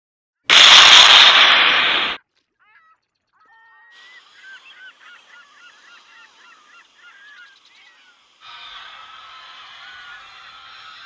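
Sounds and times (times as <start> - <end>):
geese honking: 2.6 - 11.0.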